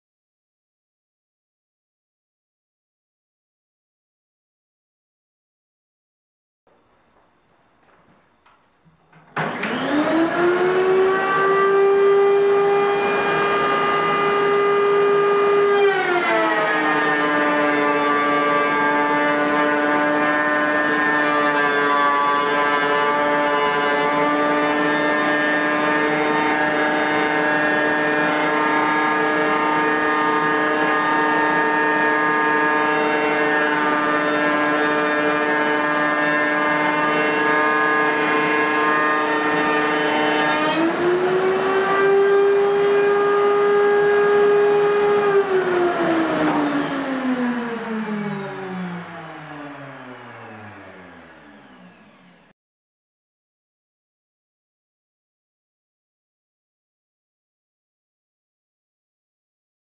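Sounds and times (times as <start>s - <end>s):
motors winding down: 9.4s - 21.3s, 21.9s - 52.5s.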